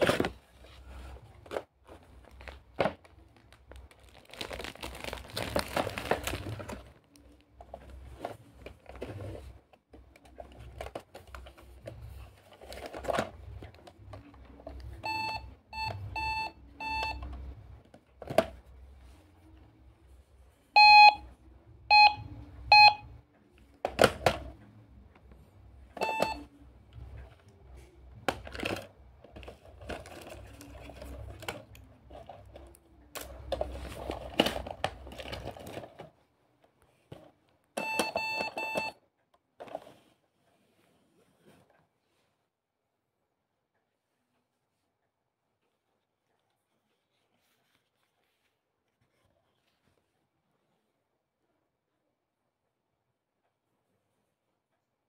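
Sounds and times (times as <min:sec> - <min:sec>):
toy cash register beeps: 0:15.0 - 0:17.3, 0:20.8 - 0:21.3, 0:21.9 - 0:23.2, 0:26.0 - 0:26.6, 0:37.8 - 0:39.0.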